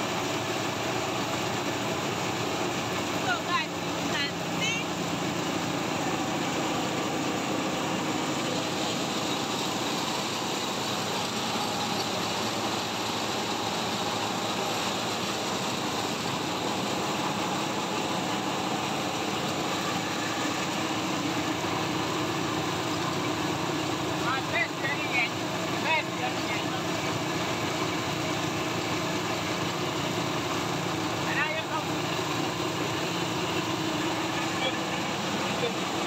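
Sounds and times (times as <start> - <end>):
rice hulling machine drone: 0.0 - 36.0.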